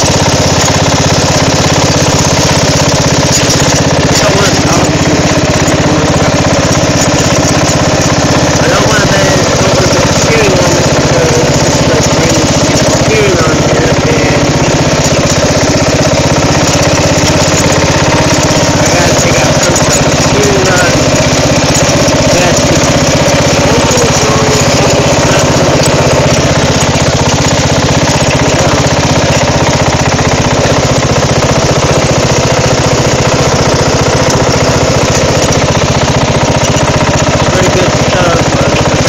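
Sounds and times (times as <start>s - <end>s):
riding lawn mower engine running: 0.0s - 39.0s.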